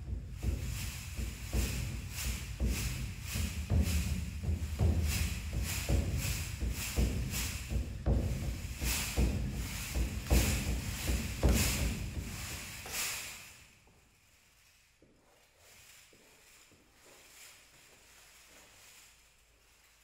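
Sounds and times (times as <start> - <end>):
footfalls on a wooden floor: 0.0 - 13.3
sequin costume rustling: 0.0 - 20.0.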